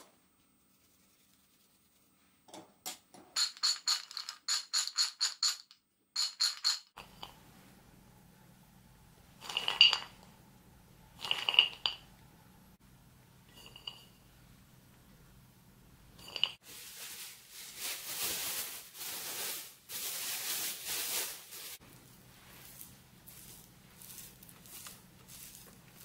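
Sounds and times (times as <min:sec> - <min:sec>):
plastic bag rustling: 0:16.6 - 0:26.0.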